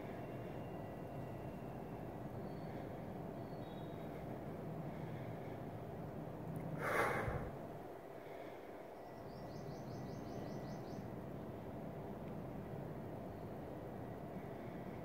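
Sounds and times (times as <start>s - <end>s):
steady background hum: 0.0s - 15.0s
person exhaling forcefully: 6.8s - 7.6s.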